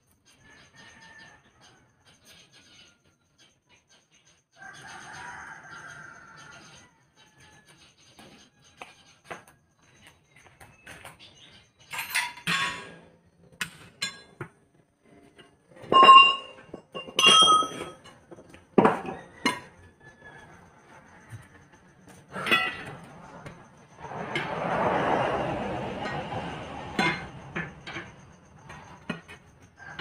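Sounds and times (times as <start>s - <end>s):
tire irons clanking on metal rim: 11.9s - 20.0s, 21.1s - 30.0s.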